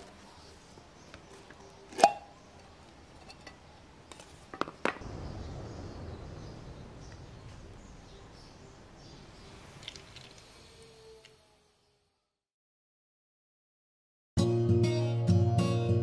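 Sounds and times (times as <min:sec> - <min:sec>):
metal lid popping off tin: 0:01.9 - 0:02.3.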